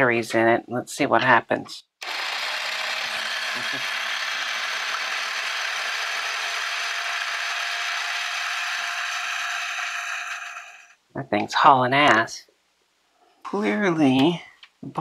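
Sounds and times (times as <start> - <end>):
toy motor whirring: 2.0 - 11.0.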